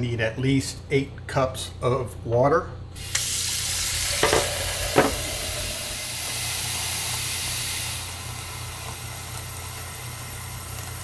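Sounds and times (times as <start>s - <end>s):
faucet running water into cup: 3.0s - 9.4s.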